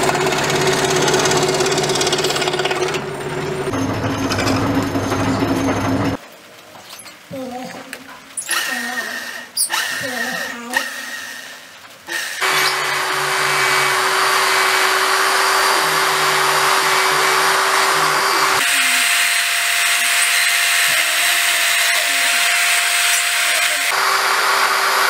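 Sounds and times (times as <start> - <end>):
blade scraping turning wood: 8.4 - 23.9
electric drill running: 8.4 - 25.0.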